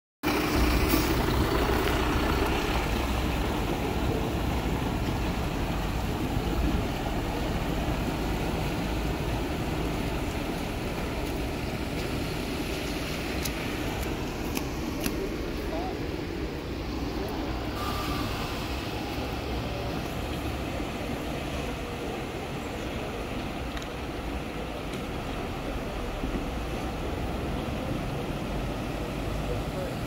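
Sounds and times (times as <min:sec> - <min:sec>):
truck engine driving past: 0:00.2 - 0:22.8
tyres churning water: 0:00.2 - 0:30.0.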